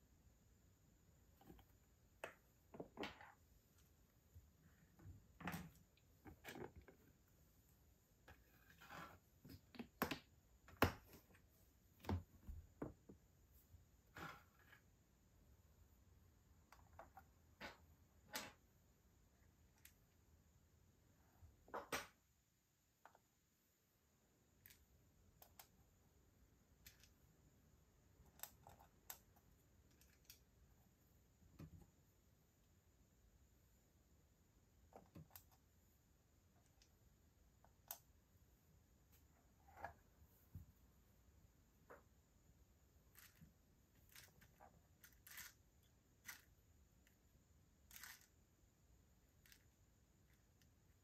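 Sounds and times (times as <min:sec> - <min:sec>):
quiet hiss: 0:00.0 - 0:51.0
tweezers clicking on plastic beads: 0:44.1 - 0:45.6.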